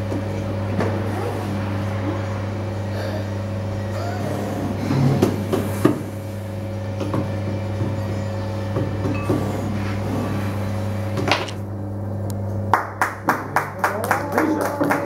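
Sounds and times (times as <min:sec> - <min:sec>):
potter's wheel motor humming: 0:00.0 - 0:15.0
hand clapping: 0:12.7 - 0:15.0.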